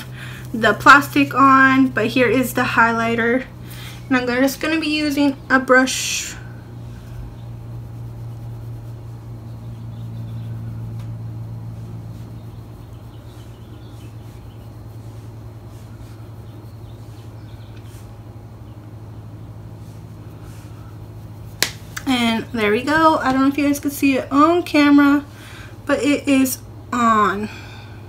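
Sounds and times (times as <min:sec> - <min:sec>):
low motor hum: 0:00.0 - 0:28.0
makeup brush scratching skin: 0:00.6 - 0:25.3.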